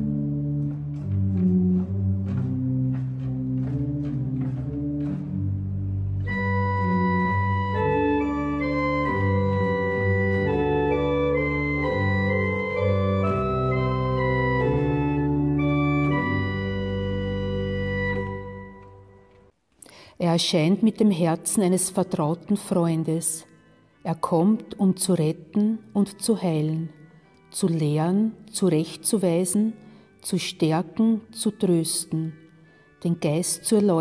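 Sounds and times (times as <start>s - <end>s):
organ bass notes: 0.0s - 19.4s
church organ chords: 0.0s - 19.5s
high organ melody: 0.0s - 19.5s.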